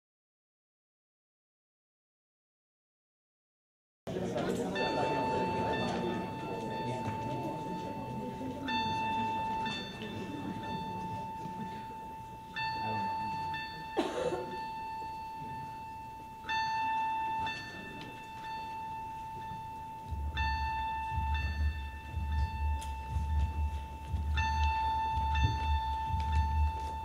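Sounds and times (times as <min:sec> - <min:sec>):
steady high tone: 0:04.2 - 0:27.0
bell-like chime: 0:04.4 - 0:27.0
deep pulsing low throb: 0:20.1 - 0:27.0.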